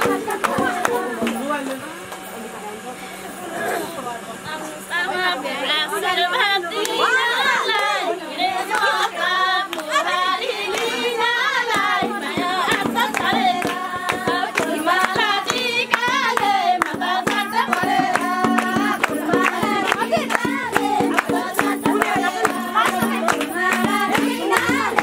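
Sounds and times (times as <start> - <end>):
women singing together: 0.0 - 1.8, 4.4 - 25.0
hand claps: 0.0 - 2.3, 8.7 - 9.0, 9.7 - 10.0, 10.7 - 25.0.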